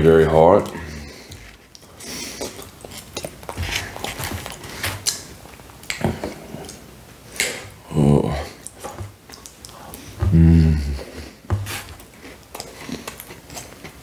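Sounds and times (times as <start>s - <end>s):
short vocal sound: 10.2s - 11.2s.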